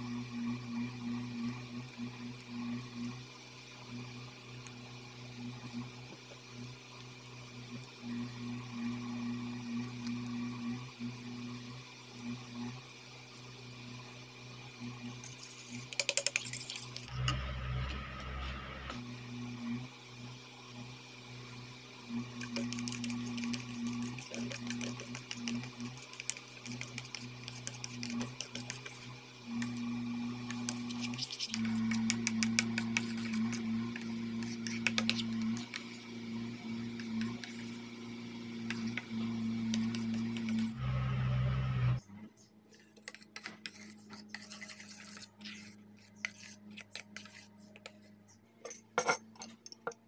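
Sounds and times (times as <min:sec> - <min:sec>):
spoon scraping steel bowl: 0:15.1 - 0:18.0, 0:22.4 - 0:29.8, 0:30.4 - 0:36.0, 0:38.6 - 0:40.7, 0:43.0 - 0:48.1, 0:48.7 - 0:49.8
low hum: 0:17.1 - 0:19.1, 0:33.1 - 0:42.0.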